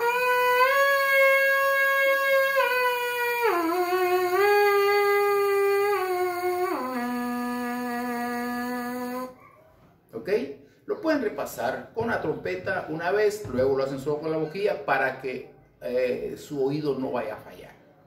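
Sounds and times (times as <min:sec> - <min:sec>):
trumpet mouthpiece buzzing: 0:00.0 - 0:09.4.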